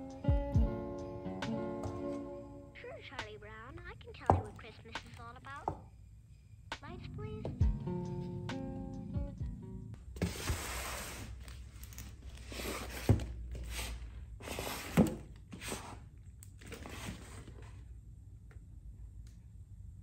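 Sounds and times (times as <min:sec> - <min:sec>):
cardboard scraping and rustling: 0:10.2 - 0:16.0, 0:16.6 - 0:17.8.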